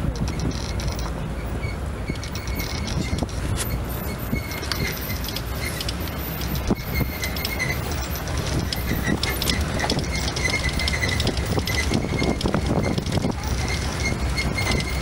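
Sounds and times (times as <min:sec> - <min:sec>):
rattles and knocks from rough ride: 0:00.0 - 0:15.0
vehicle engine and road rumble: 0:00.0 - 0:15.0.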